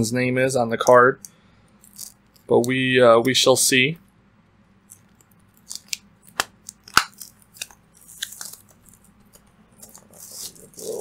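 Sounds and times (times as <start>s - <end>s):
plastic wrap crinkling: 4.9s - 11.0s
packaging rustle: 7.0s - 11.0s.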